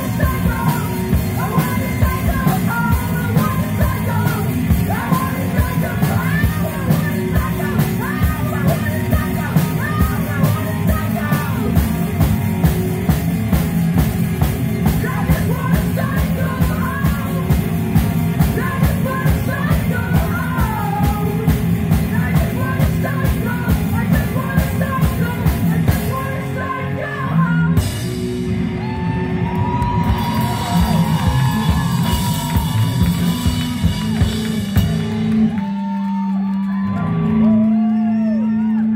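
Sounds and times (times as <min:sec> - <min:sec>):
person singing: 0:00.0 - 0:12.3, 0:14.8 - 0:28.0
drum kit beat with cymbals: 0:00.0 - 0:26.6, 0:30.0 - 0:35.6
electric guitar: 0:00.0 - 0:38.9.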